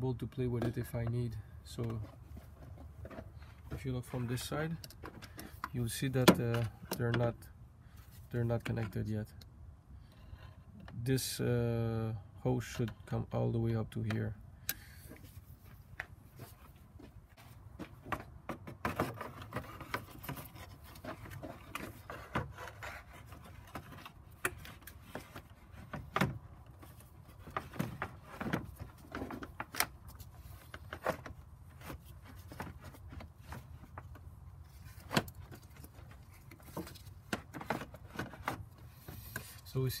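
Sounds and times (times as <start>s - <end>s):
plastic parts clicking and rubbing: 14.0s - 39.8s.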